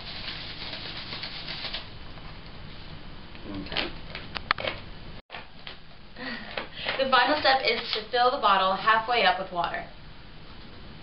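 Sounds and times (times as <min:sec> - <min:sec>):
plastic bottle being shaken: 0:00.0 - 0:01.9.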